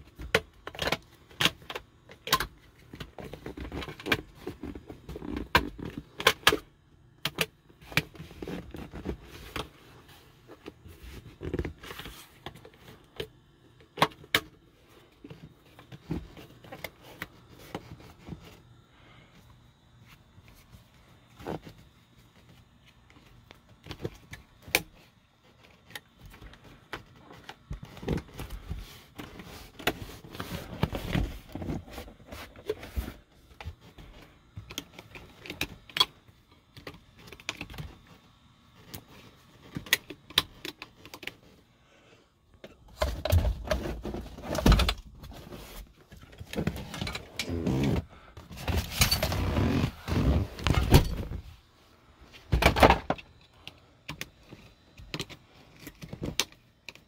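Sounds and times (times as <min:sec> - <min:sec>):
seat rubbing and thumping: 0:47.4 - 0:51.5.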